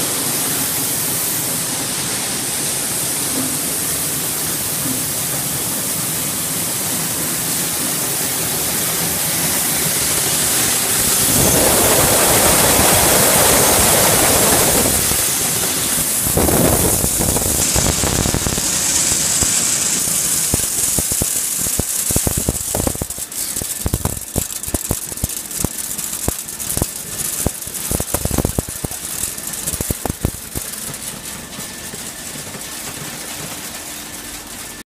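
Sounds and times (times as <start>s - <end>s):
sorting machine hissing: 0.0s - 34.8s
beans pouring into sack: 9.2s - 30.8s.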